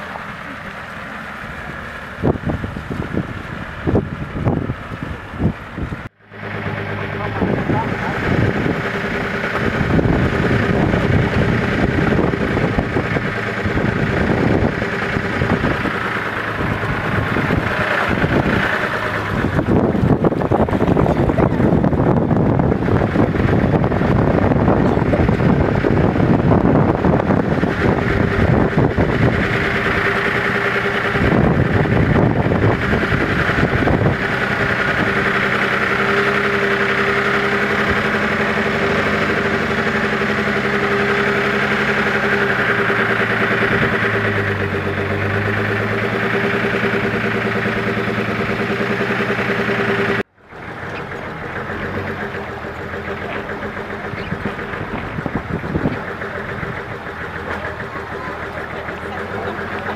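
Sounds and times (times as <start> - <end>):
diesel truck engine drone: 0.0 - 59.9
rough driving noise: 0.0 - 59.9.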